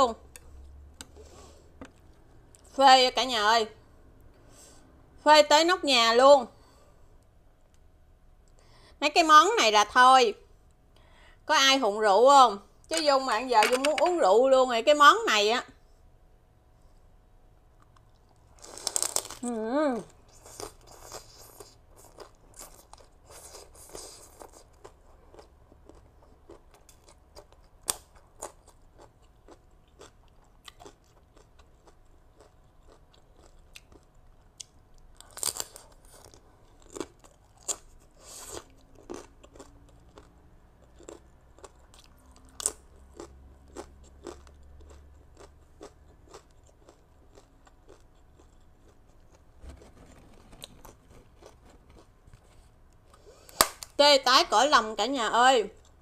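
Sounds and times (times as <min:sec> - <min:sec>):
crunching rice cracker: 0:18.5 - 0:19.5, 0:20.3 - 0:52.7.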